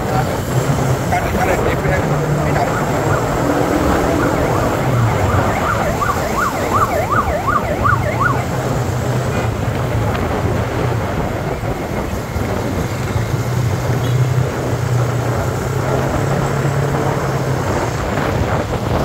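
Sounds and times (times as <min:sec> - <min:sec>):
motorbike engines droning: 0:00.0 - 0:19.0
road noise: 0:00.0 - 0:19.0
yelp siren: 0:01.0 - 0:08.9.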